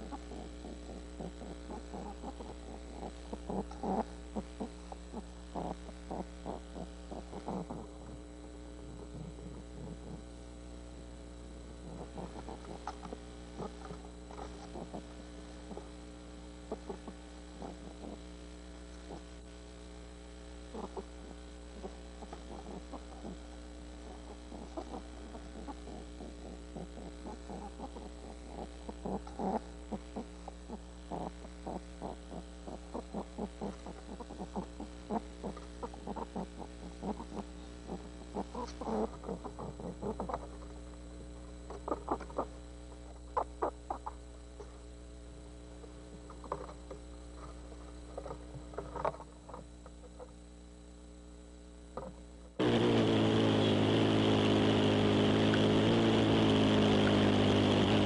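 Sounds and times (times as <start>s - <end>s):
electrical mains hum: 0.0s - 58.0s.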